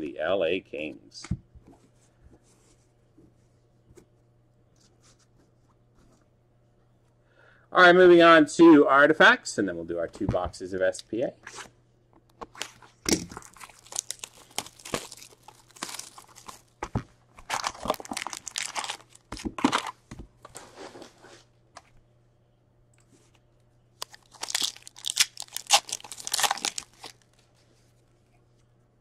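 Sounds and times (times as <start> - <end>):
plastic wrap crinkling and tearing: 12.6 - 16.8, 17.4 - 20.0, 24.0 - 27.5
foil packs crinkling and tearing: 13.3 - 16.8, 17.4 - 20.0, 24.0 - 27.3.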